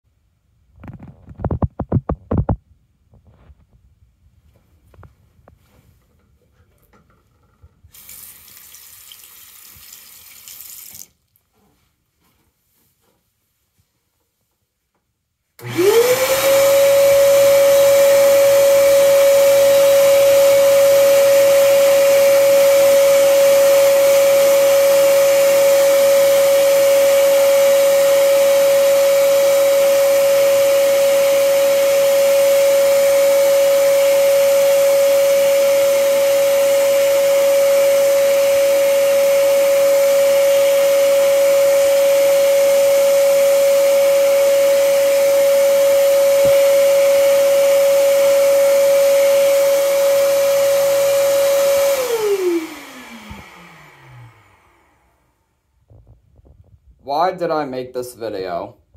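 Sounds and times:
vacuum cleaner motor whine: 15.6s - 56.1s.

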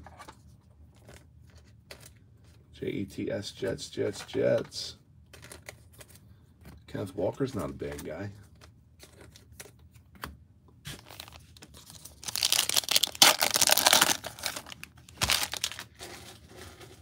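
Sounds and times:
plastic wrapper tearing and crinkling: 10.9s - 16.6s.

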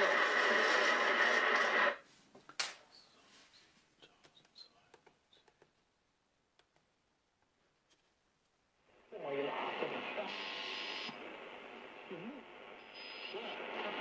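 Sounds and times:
shortwave radio broadcast: 0.0s - 2.0s, 8.9s - 14.0s.

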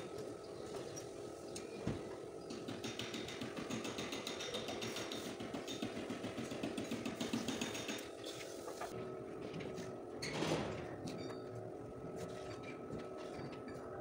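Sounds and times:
pneumatic tool rattling on sheet metal: 2.7s - 8.3s.

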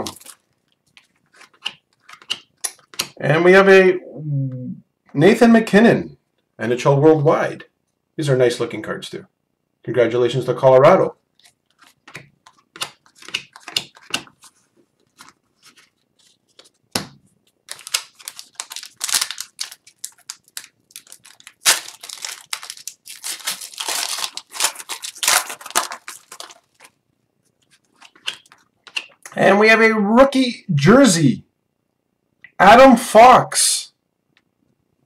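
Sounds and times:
card pack tearing and crinkling: 0.0s - 0.5s, 17.6s - 27.0s
cards clicking and rustling: 0.0s - 3.2s, 11.3s - 27.0s, 27.6s - 29.4s.

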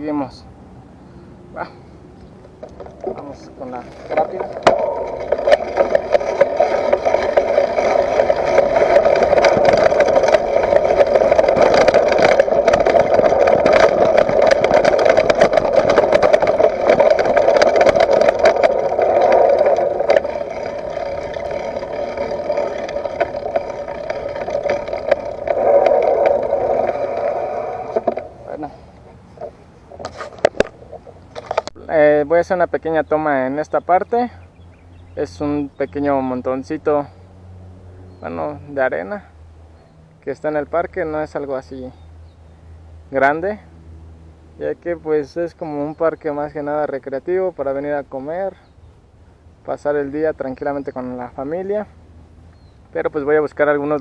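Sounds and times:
bike clicks and rattles: 2.2s - 31.8s
wind on microphone: 2.6s - 31.6s
bike tyres rolling over dirt: 2.6s - 32.2s.

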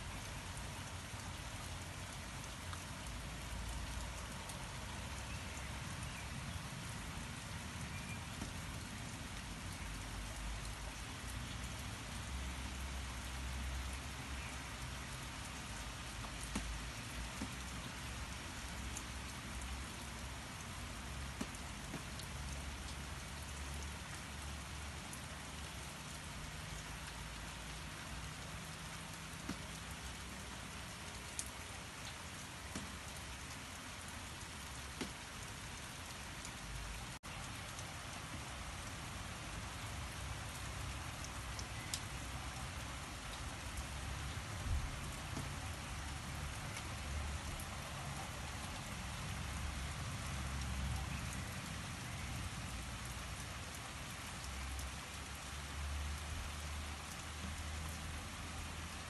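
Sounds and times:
raindrops ticking: 0.0s - 59.0s
steady rain hiss: 0.0s - 59.0s.

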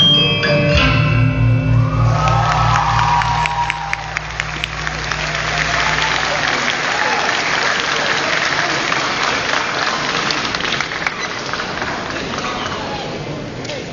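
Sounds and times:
gamelan ringing notes: 0.0s - 7.1s
audience applauding: 2.0s - 13.4s.

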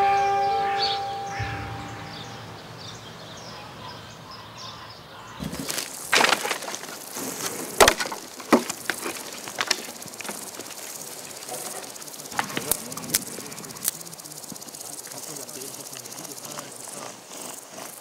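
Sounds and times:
sticks thrown onto woodpile: 5.4s - 11.8s.

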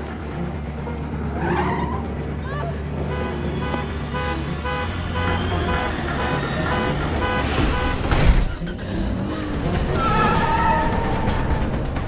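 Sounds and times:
car horn honking: 3.0s - 8.4s.

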